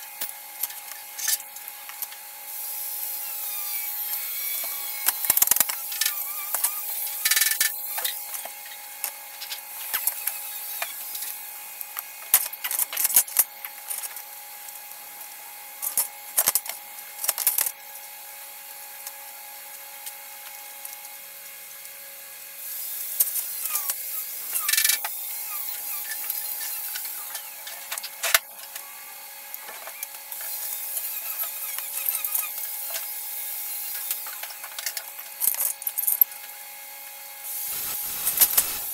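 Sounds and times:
sharp tool strokes: 3.2s - 8.5s, 22.7s - 28.4s, 37.5s - 38.9s
tool scraping metal: 3.3s - 8.6s, 23.2s - 28.4s, 29.7s - 33.1s, 37.5s - 38.9s.

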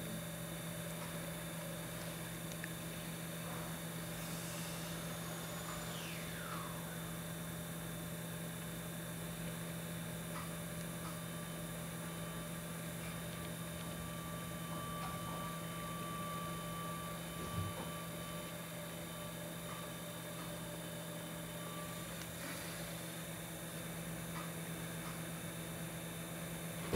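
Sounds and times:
pottery wheel motor humming: 0.0s - 26.9s
falling motor whine: 3.0s - 9.7s.

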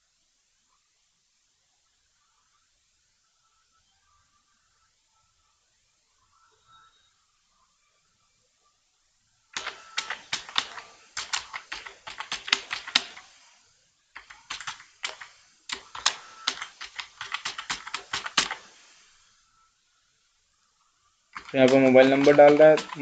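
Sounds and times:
keyboard typing clicks: 9.6s - 13.4s, 14.2s - 18.8s, 21.4s - 23.0s.

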